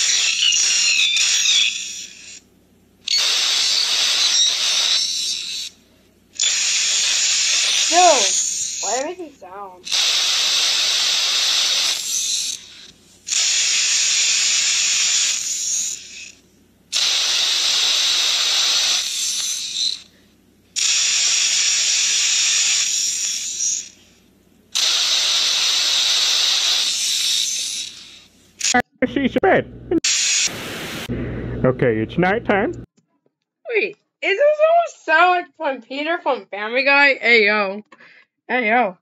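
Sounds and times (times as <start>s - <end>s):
loud hissing bursts from phones: 3.1s - 5.8s, 6.4s - 20.2s, 20.8s - 28.7s, 30.1s - 31.1s.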